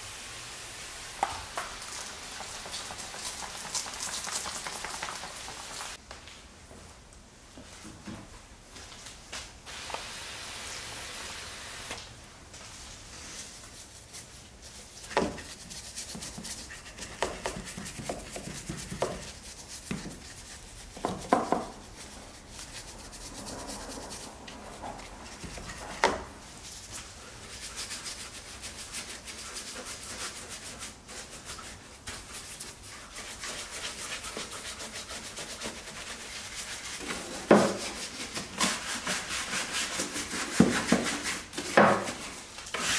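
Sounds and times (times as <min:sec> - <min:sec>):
bristle brush scrubbing: 0:01.8 - 0:06.0, 0:13.2 - 0:41.5
spray hissing: 0:09.7 - 0:12.0.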